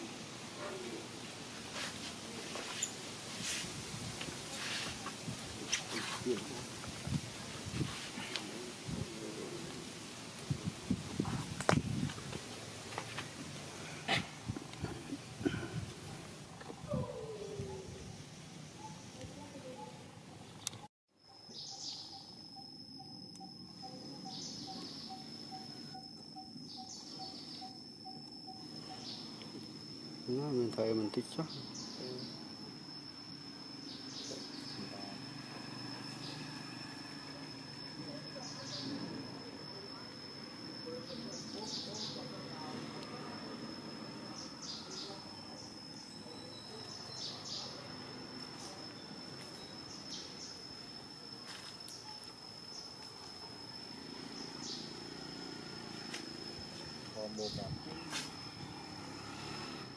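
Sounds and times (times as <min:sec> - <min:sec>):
shimmering insect call: 0:00.0 - 0:59.9
high-pitched insect drone: 0:20.7 - 0:59.9.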